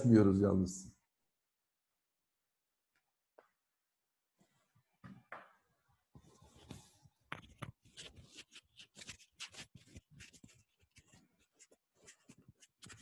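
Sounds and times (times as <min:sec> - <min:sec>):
rustling and scratching: 0:06.2 - 0:13.0.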